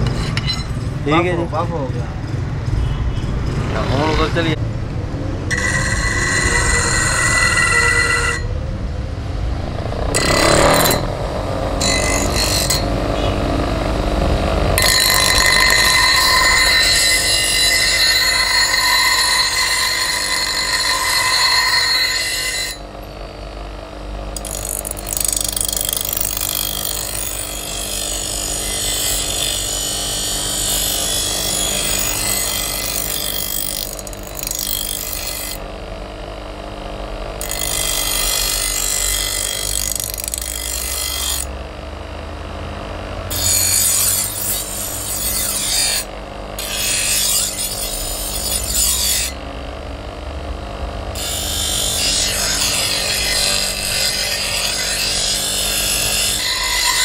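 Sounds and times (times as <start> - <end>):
blade grinding on stone wheel: 0.0 - 0.9, 5.5 - 8.6, 10.1 - 13.6, 14.2 - 23.5, 24.3 - 35.6, 37.4 - 41.6, 43.3 - 49.4, 51.1 - 57.0
bench grinder motor hum: 9.6 - 57.0.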